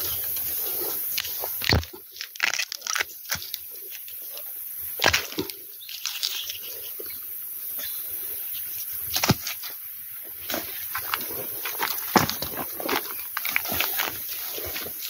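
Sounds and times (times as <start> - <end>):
dry leaves and twigs crackling underfoot: 0.0 - 15.0
twig snapping: 1.6 - 3.6.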